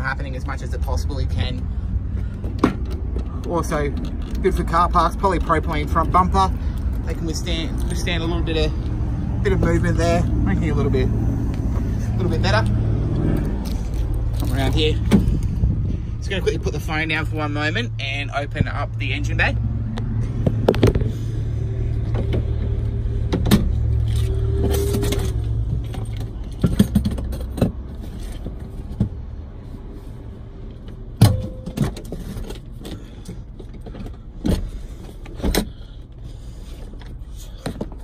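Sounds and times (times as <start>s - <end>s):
clunks and knocks of van parts: 2.1s - 4.4s, 14.4s - 15.9s, 20.0s - 21.2s, 22.0s - 24.0s, 24.6s - 29.3s, 30.7s - 38.0s.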